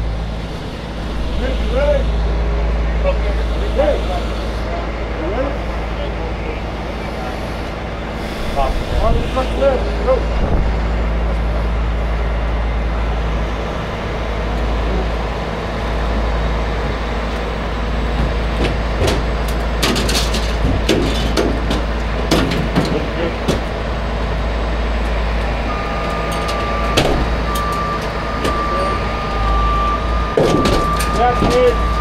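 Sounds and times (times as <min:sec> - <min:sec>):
diesel engine running: 0:00.0 - 0:32.0
metal clanks and knocks: 0:18.0 - 0:23.9, 0:26.0 - 0:28.7, 0:30.2 - 0:32.0.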